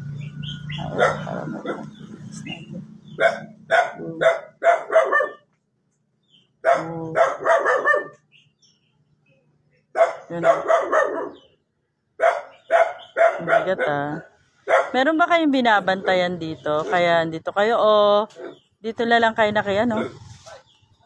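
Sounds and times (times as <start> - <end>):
dog barking: 0.7 - 2.1, 3.0 - 5.5, 6.6 - 8.3, 9.9 - 11.5, 12.2 - 15.1, 15.9 - 17.2, 18.3 - 18.6, 19.8 - 20.8.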